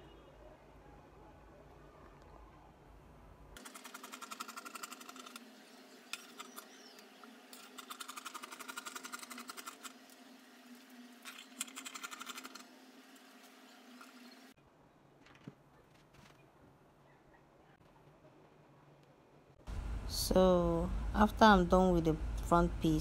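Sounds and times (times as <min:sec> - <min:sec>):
faint steady hum: 0:18.0 - 0:23.0.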